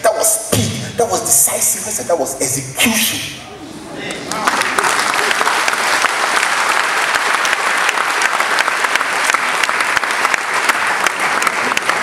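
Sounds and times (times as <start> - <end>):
audience applause: 4.0 - 12.0.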